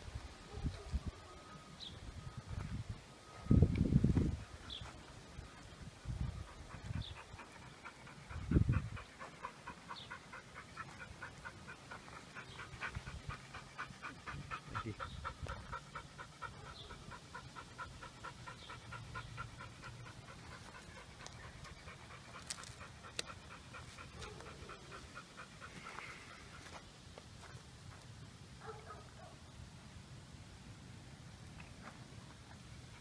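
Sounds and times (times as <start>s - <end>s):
dog panting: 4.3s - 26.8s.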